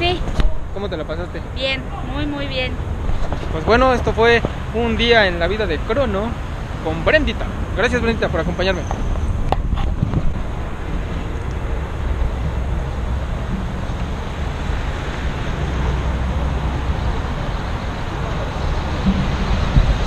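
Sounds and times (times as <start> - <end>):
low rumble with hiss: 0.0 - 20.0.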